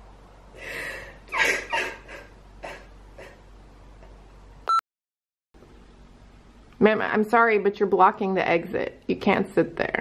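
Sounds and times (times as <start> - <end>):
woman sobbing breaths: 0.6 - 3.4.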